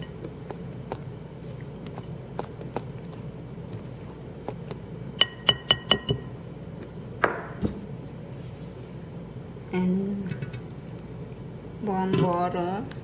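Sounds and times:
whisk clinking against bowl: 5.2s - 6.3s.

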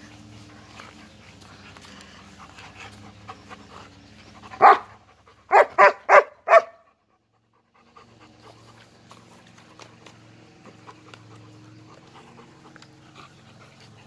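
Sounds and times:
dog panting: 0.0s - 14.0s
dog barking: 4.6s - 4.9s, 5.5s - 6.9s.

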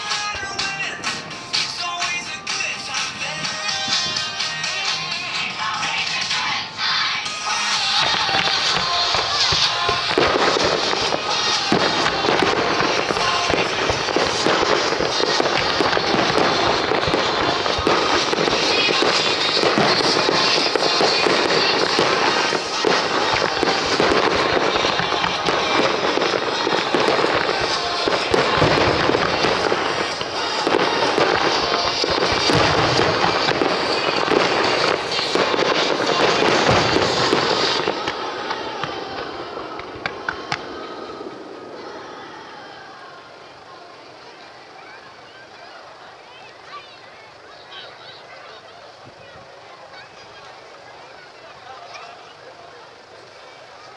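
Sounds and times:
music: 0.0s - 38.0s
fireworks cracking and banging: 0.0s - 53.9s.

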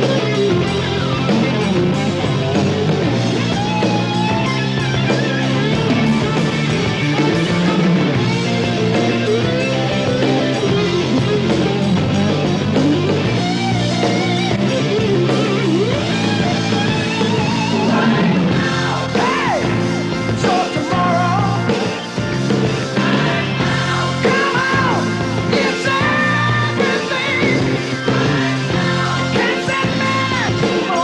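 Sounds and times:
rock guitar: 0.0s - 31.0s
person singing: 17.6s - 19.8s, 20.4s - 21.9s, 22.9s - 31.0s.

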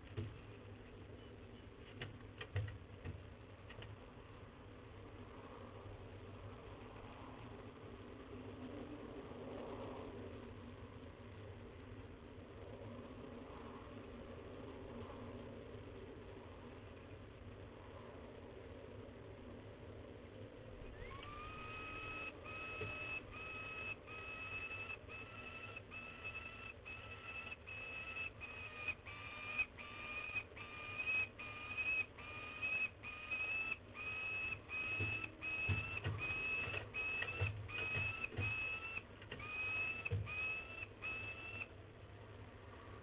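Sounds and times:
falcon calling: 21.2s - 41.7s.

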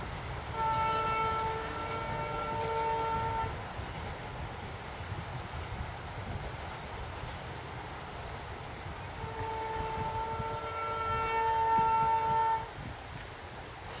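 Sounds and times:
locomotive horn blast: 0.5s - 3.6s, 9.2s - 12.7s.

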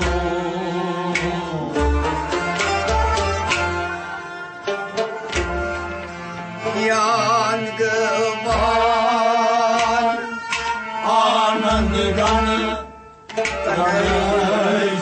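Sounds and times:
man singing: 0.0s - 2.2s, 6.6s - 10.4s, 11.0s - 12.9s, 13.6s - 15.0s
hand drum: 0.0s - 4.1s, 4.7s - 6.1s
plucked strings: 1.1s - 10.9s.

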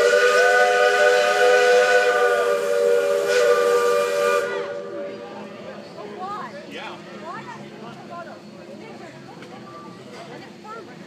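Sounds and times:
steam locomotive whistle: 0.0s - 5.2s.

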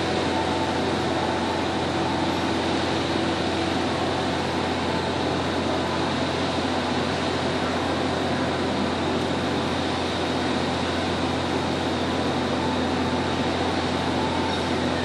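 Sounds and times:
steady droning machine hum: 0.0s - 15.0s.

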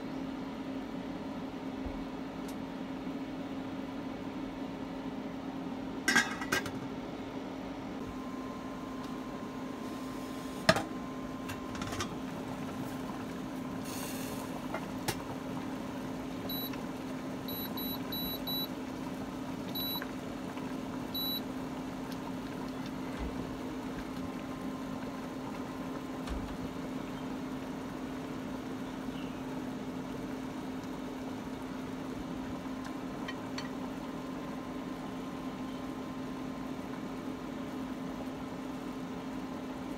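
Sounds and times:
induction cooktop humming: 0.0s - 39.9s
short beeps: 17.5s - 18.7s, 19.8s - 20.0s, 21.2s - 21.4s.

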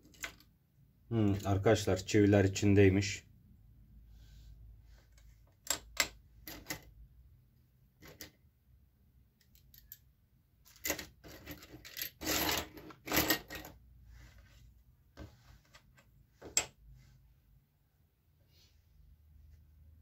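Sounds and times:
nails scraping and clinking: 0.0s - 0.5s, 5.6s - 6.9s, 8.0s - 8.4s, 9.4s - 13.8s.

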